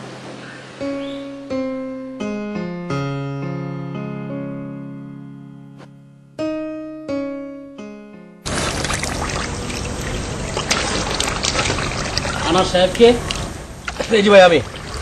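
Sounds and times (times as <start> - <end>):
piano notes and chords: 0.0 - 13.8.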